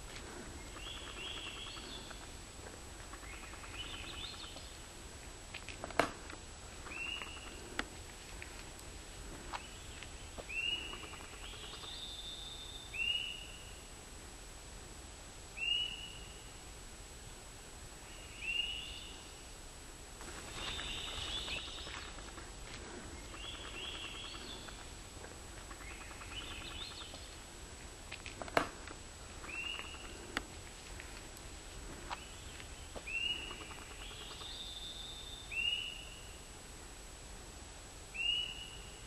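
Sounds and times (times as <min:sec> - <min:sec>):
songbirds singing: 0:00.0 - 0:04.9, 0:06.2 - 0:08.6, 0:09.2 - 0:13.9, 0:18.0 - 0:19.4, 0:20.2 - 0:27.5, 0:28.3 - 0:36.5, 0:38.1 - 0:39.0.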